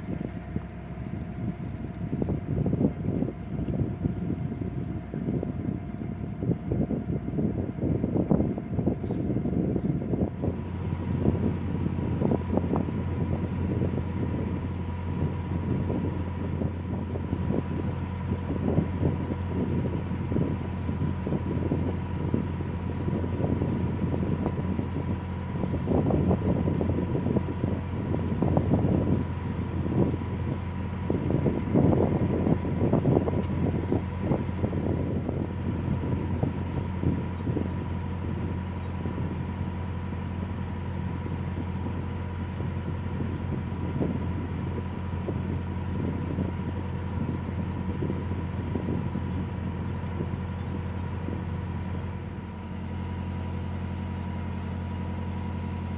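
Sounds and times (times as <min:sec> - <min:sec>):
boat engine running: 0:00.0 - 0:55.9
wind buffeting microphone: 0:00.0 - 0:55.9.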